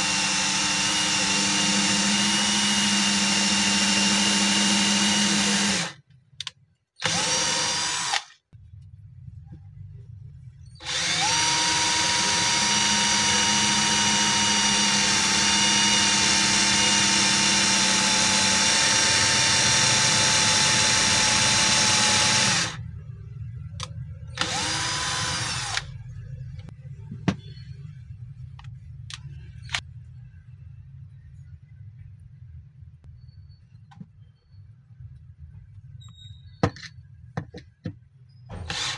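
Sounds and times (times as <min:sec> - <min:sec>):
cordless drill whining: 0:00.0 - 0:06.0, 0:07.0 - 0:08.3, 0:10.8 - 0:22.8, 0:24.4 - 0:25.9, 0:38.6 - 0:38.9.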